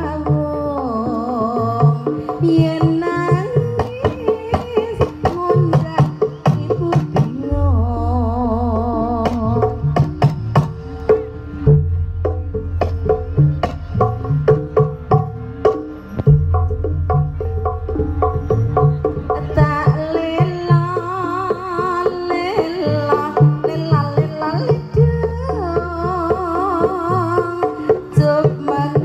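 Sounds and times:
deep sustained tones: 7.5s - 21.7s
wavering melody line: 7.5s - 22.9s.

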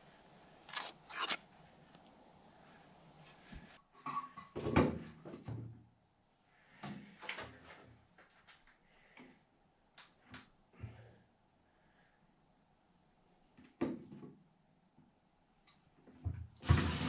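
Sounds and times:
tool knocks and scrapes: 0.7s - 1.4s.

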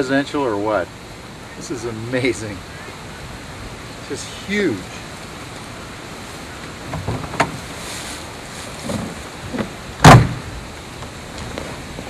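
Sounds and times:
loud thump: 10.0s - 10.5s.

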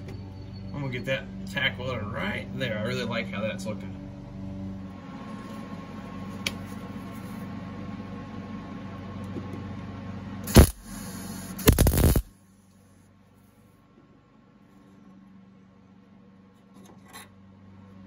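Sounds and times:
steady low hum: 0.0s - 18.0s
welder crackling bursts: 10.4s - 12.3s.

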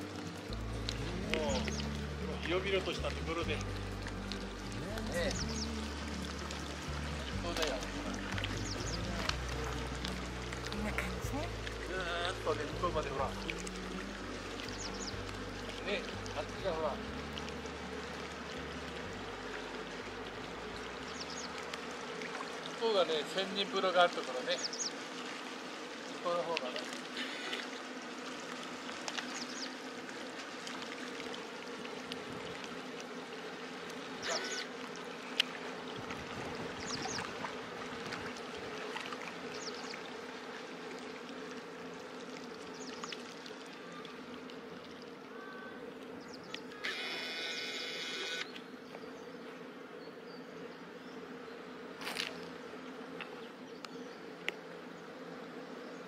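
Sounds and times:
river flowing over stones: 0.0s - 45.4s
high buzzy sound: 46.6s - 48.6s.

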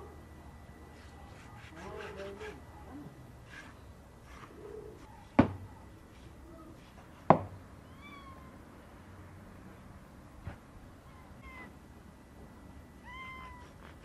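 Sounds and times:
knocks on wooden cutting board: 5.4s - 5.6s, 7.3s - 7.5s.

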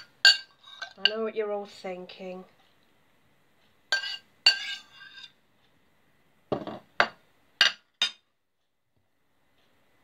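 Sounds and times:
metal spoon clinking ceramic bowl: 0.0s - 1.2s, 3.9s - 5.3s, 7.0s - 8.3s.

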